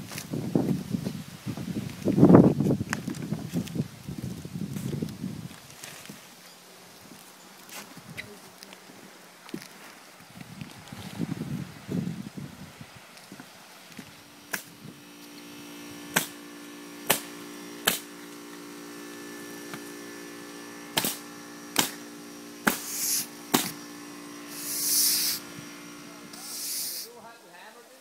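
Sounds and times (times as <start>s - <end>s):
steady hum: 11.4s - 27.3s
hissing scrapes: 22.6s - 23.8s, 24.4s - 27.2s
sharp knocks: 23.5s - 23.8s.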